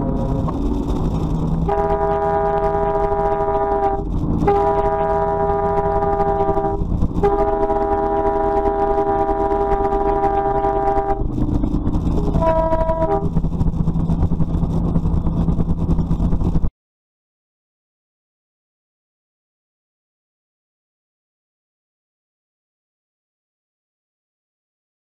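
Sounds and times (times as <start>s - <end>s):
engine and road rumble: 0.0s - 16.7s
truck air horn blasts: 1.7s - 11.2s, 12.2s - 13.3s.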